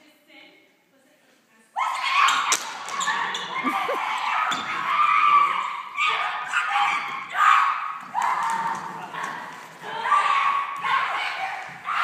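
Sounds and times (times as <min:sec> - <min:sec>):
women screaming and shrieking: 0:03.6 - 0:06.9.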